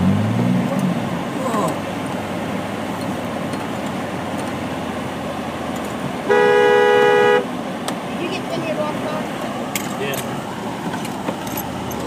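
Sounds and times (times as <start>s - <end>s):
vehicle engine idling: 0.7s - 12.0s
car horn honk: 6.2s - 7.6s.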